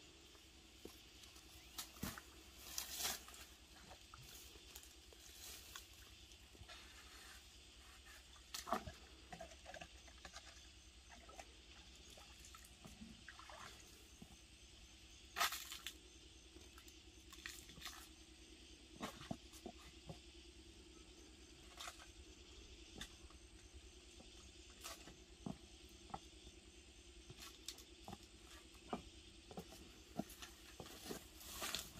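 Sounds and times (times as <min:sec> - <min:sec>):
low steady hum: 0:00.0 - 0:31.9
rustles and light knocks: 0:27.3 - 0:31.9.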